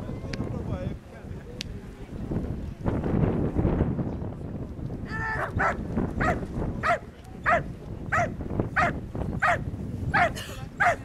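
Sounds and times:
dog barking rhythmically: 5.6 - 9.6, 10.2 - 11.0.

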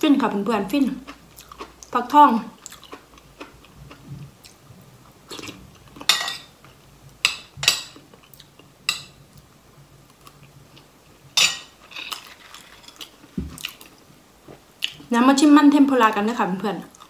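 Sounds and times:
chewing: 1.0 - 2.0, 2.6 - 4.6, 5.3 - 6.1, 11.8 - 14.0.

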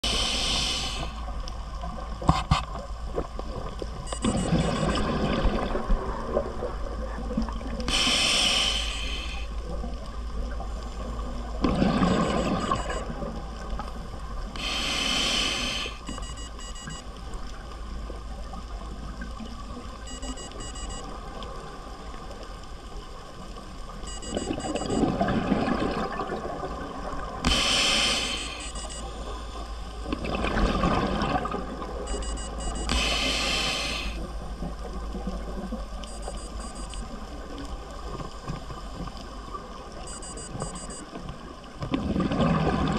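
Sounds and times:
regulator hissing inhale: 0.0 - 1.3, 7.9 - 9.6, 14.6 - 16.0, 27.5 - 29.7, 32.9 - 34.2
bubbling exhale underwater: 11.6 - 12.7, 24.6 - 28.3, 30.1 - 31.8, 41.9 - 42.9.

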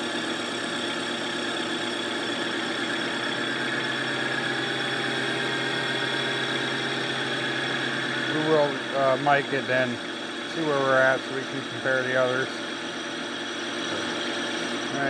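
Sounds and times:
lathe running with hum and hiss: 0.0 - 15.0.

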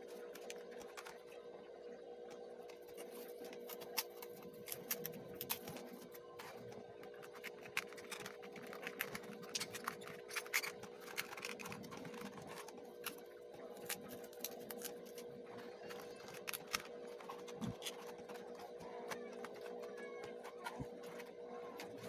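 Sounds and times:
faint steady hum: 0.0 - 22.0
paperboard crackling and clicking: 0.0 - 22.0.

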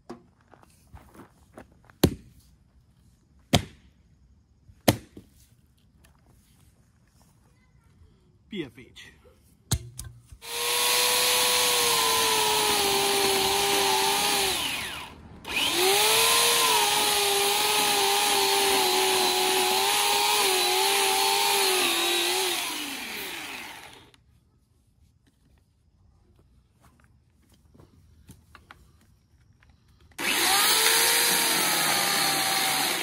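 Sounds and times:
electric chainsaw cutting log: 10.4 - 24.2, 30.2 - 33.0.

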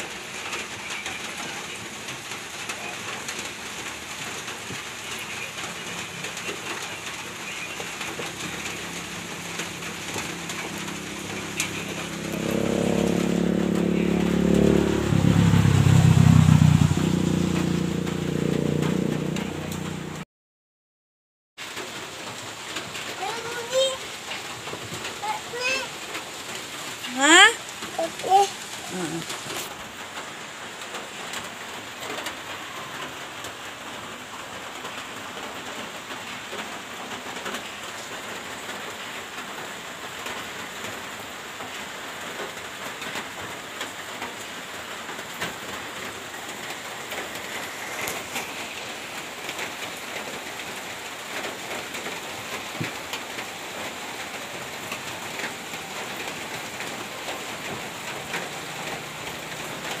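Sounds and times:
steady rain falling: 0.0 - 20.2, 21.6 - 60.0.

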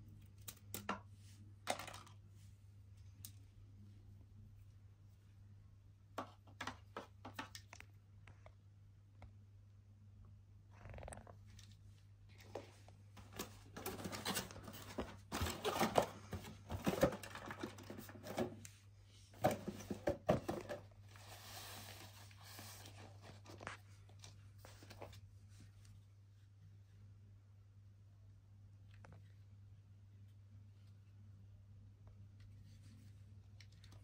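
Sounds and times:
packaging rustling: 13.2 - 18.5.

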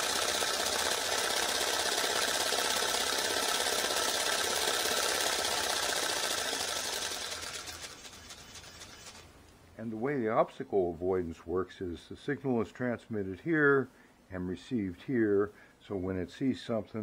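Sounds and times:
toy ornithopter motor whirring: 0.0 - 9.3.

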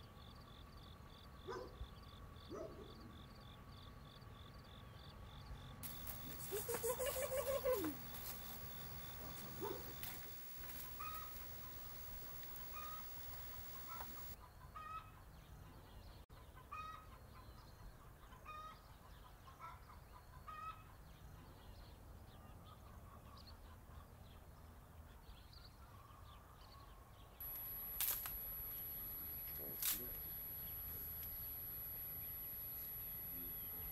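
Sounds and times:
chickens clucking: 5.8 - 14.4.

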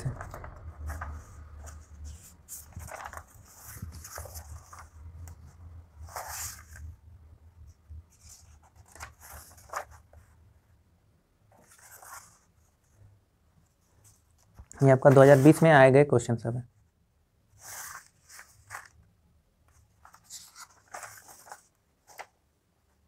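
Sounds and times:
paper pages turning: 0.0 - 7.0, 8.1 - 10.3, 11.5 - 12.6, 14.0 - 15.7, 17.6 - 19.1, 19.7 - 22.4.

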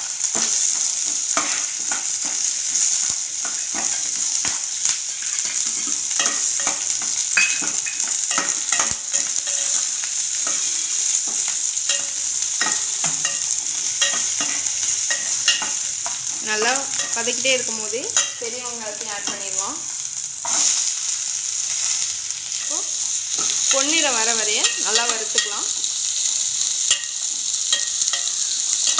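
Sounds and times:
shallots frying in hot oil: 0.0 - 28.9.

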